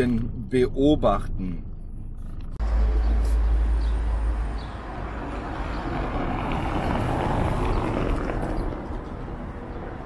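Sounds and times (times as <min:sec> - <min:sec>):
car tyres rolling over cobblestones: 0:04.6 - 0:10.0.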